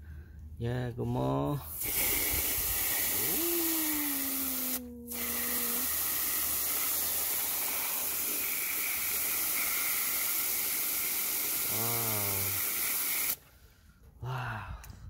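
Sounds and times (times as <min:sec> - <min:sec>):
water spray jet hissing: 0:01.7 - 0:13.4.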